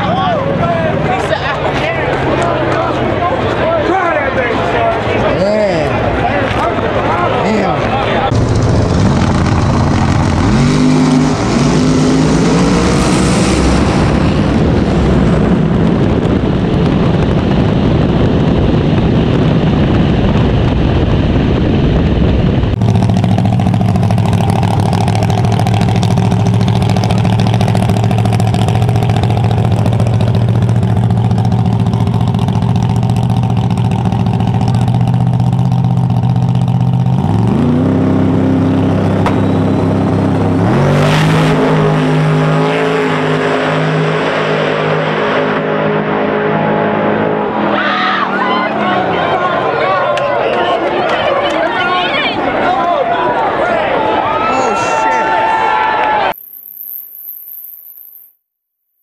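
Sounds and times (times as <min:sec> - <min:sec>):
car engine revving: 0:00.0 - 0:16.8, 0:19.8 - 0:47.8.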